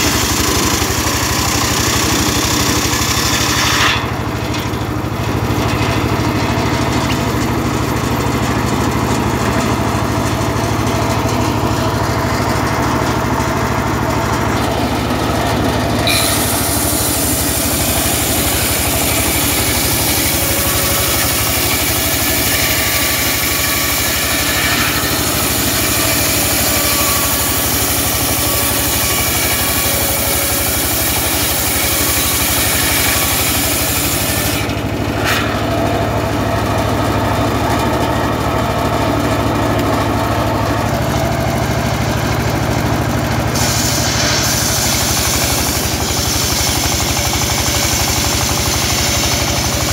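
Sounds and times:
circular saw ripping wood: 0.0 - 38.2, 39.4 - 49.9
engine droning: 0.0 - 49.9
saw blade spinning free: 16.0 - 35.4, 43.5 - 49.9.

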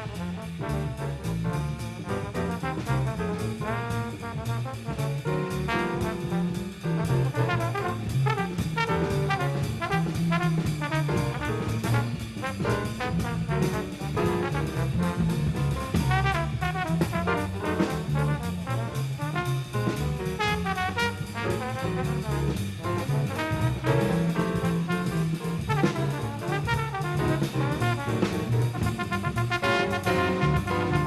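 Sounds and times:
bass: 0.0 - 31.0
drums: 0.0 - 31.0
jazz trombone solo: 0.0 - 31.0.

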